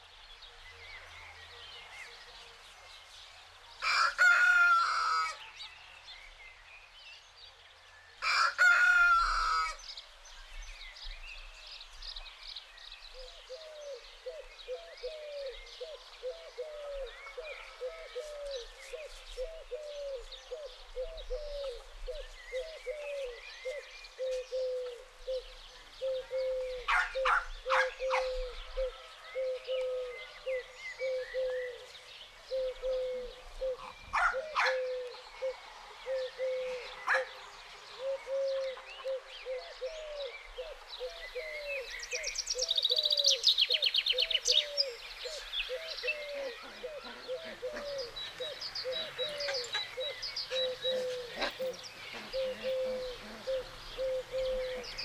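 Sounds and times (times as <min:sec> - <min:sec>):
rooster crowing: 0:03.8 - 0:05.4, 0:08.2 - 0:09.8
small birds chirping: 0:09.7 - 0:55.0
sharp bird calls: 0:13.1 - 0:55.0
short low falling bird calls: 0:13.1 - 0:55.0.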